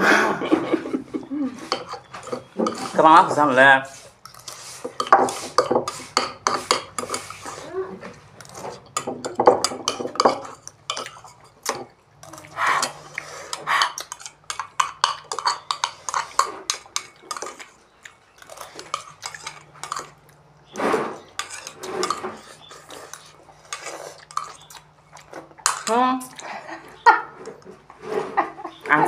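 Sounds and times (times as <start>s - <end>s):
cutlery clinking on ceramic bowls: 1.7s - 3.3s, 4.3s - 7.6s, 8.4s - 20.3s, 21.0s - 26.4s
people slurping noodles: 12.2s - 14.3s, 20.7s - 24.9s.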